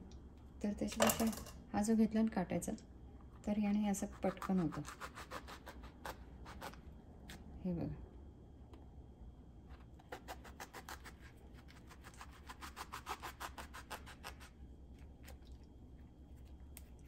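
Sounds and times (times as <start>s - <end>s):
knife sawing eggplant: 4.0s - 6.8s, 10.0s - 14.6s.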